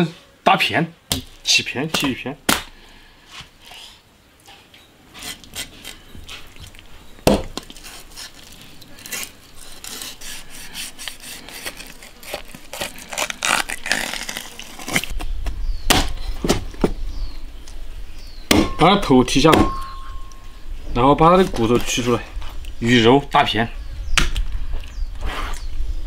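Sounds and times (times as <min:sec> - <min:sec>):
cleaver scraping fish: 0:07.6 - 0:15.2.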